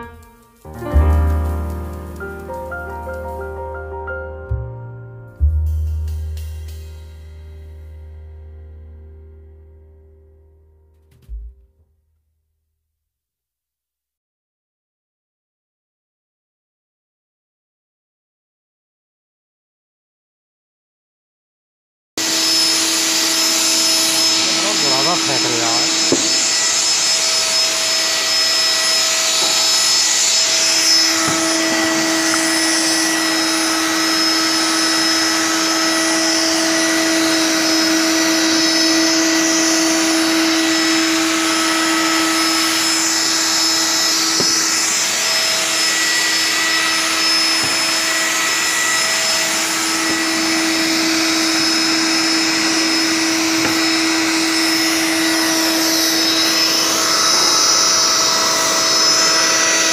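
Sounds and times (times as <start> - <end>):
loud hiss: 0.0 - 3.9, 22.2 - 59.9
electric motor humming: 22.2 - 59.9.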